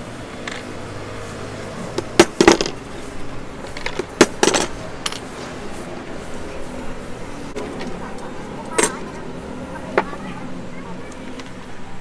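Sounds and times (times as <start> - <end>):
metal clinks and taps: 3.7 - 5.3.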